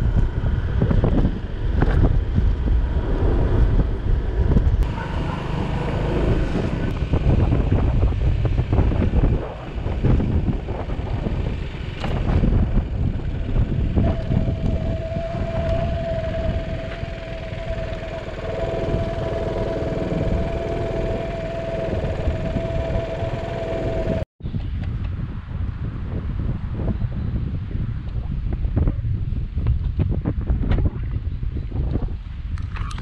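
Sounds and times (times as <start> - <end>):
steady whining tone: 0.0 - 24.3
motorcycle engine rumbling: 0.0 - 24.8
wind buffeting microphone: 0.0 - 33.0.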